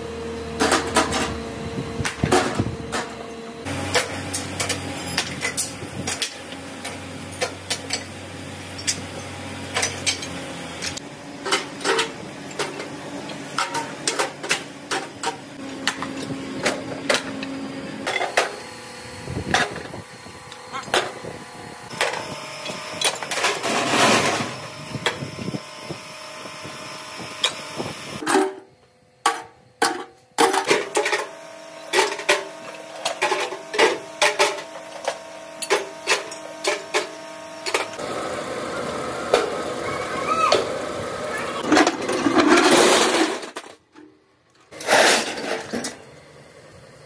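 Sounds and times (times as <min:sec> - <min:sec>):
tools clanking on metal: 0:08.8 - 0:18.6.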